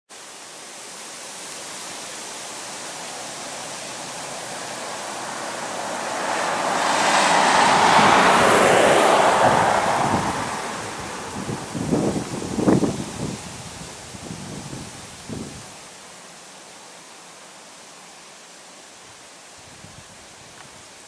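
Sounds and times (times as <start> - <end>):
car passing: 2.7 - 13.4
wind buffeting microphone: 6.5 - 15.8.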